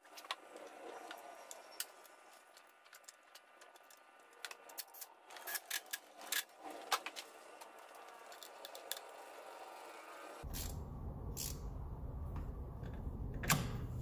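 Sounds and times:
small parts clicking: 0.2s - 9.3s.

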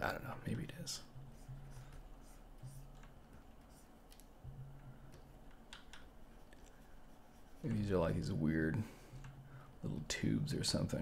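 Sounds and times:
faint low hum: 0.0s - 11.0s
tablet pen and keyboard clicks: 5.5s - 6.1s.

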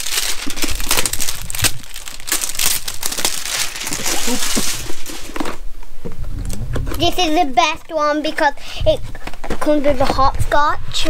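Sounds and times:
plastic wrapping crinkling: 0.0s - 5.6s.

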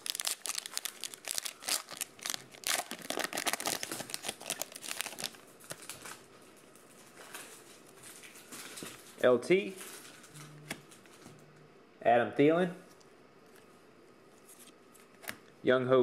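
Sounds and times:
foil wrapper crinkling and tearing: 0.0s - 6.2s.

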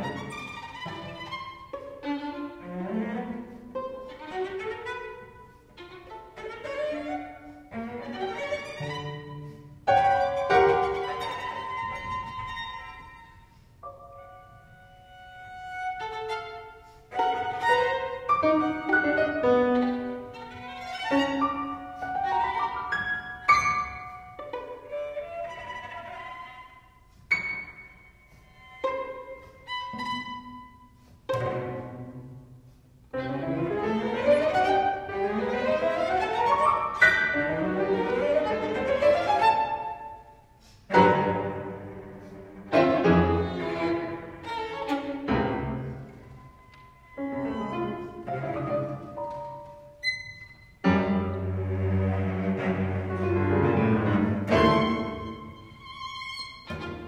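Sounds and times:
violin cello and piano trio: 0.0s - 57.0s.

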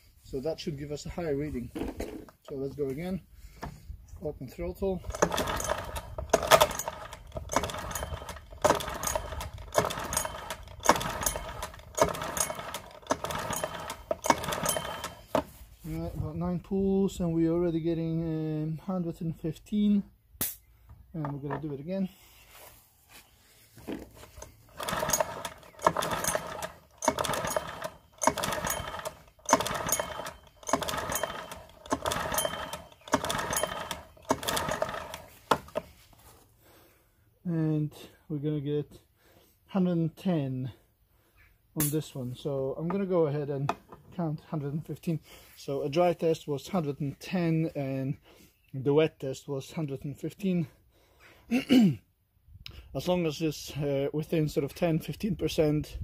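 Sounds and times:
recoil starter pulls cranking engine: 4.8s - 15.6s, 23.9s - 35.9s.

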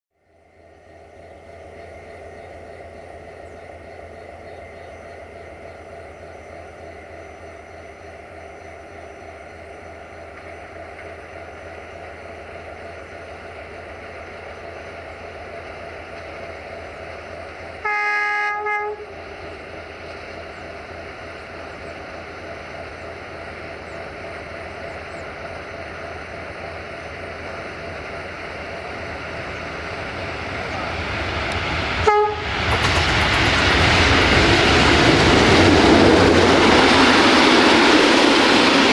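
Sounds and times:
diesel locomotive engine running: 0.2s - 38.9s
train horn blast: 17.8s - 19.2s, 32.0s - 32.6s.

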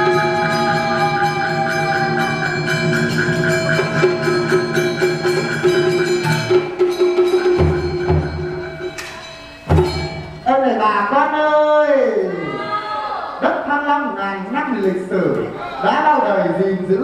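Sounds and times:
fast clicking percussion: 0.0s - 10.5s.

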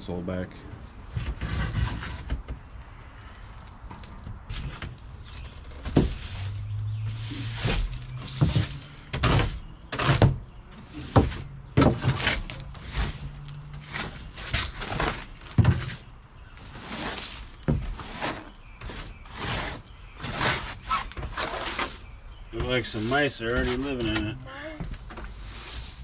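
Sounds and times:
broom scraping a boat deck: 1.1s - 2.5s, 4.5s - 26.0s.

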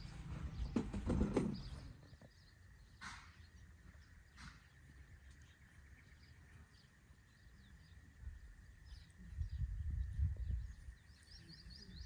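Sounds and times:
low rumble on microphone: 7.9s - 12.0s.

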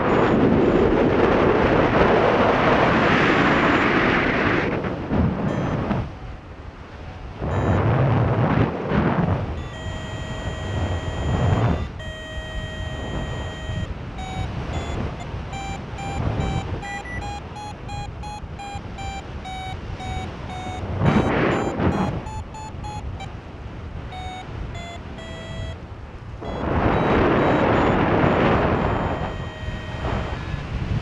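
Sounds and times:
quick repeated beeps: 0.0s - 0.9s, 5.5s - 5.9s, 7.5s - 7.9s, 9.5s - 23.4s, 24.1s - 25.8s, 26.4s - 30.6s
long steady electronic tones: 0.0s - 2.0s, 5.4s - 8.4s, 9.4s - 30.8s
wind buffeting microphone: 0.0s - 31.0s.

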